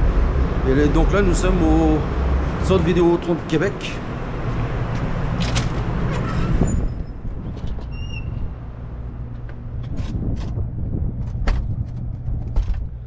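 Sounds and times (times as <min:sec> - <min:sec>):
low rumble and hiss: 0:00.0 - 0:06.0.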